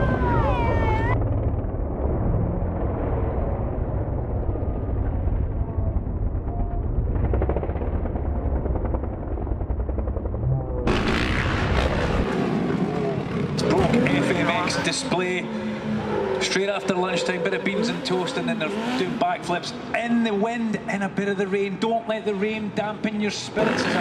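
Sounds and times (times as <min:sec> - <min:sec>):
motorcycle engines revving: 0:10.1 - 0:20.0, 0:23.3 - 0:24.0.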